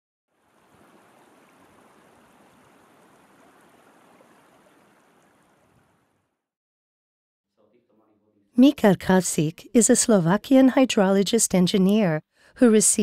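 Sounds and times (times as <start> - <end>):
running water: 0.3 - 6.2.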